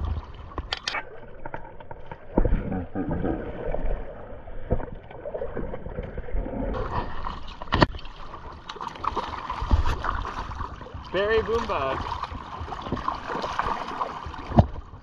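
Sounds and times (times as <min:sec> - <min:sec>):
water sloshing and lapping: 0:00.0 - 0:15.0.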